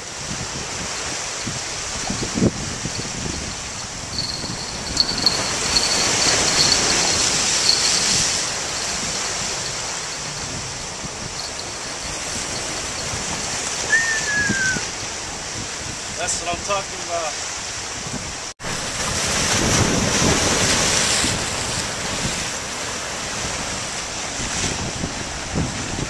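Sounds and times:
surf washing over rocks: 0:00.0 - 0:26.0
high whistle-like note: 0:13.9 - 0:14.8.

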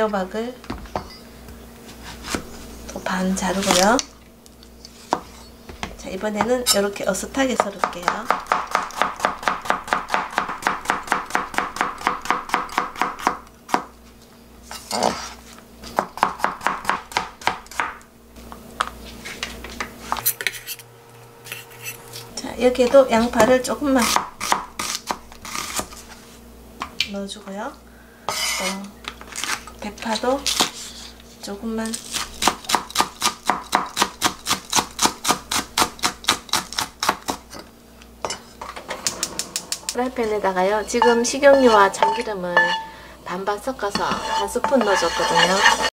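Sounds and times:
knife chopping on cutting board: 0:07.6 - 0:13.9, 0:15.9 - 0:18.0, 0:23.4 - 0:25.9, 0:43.9 - 0:45.9.

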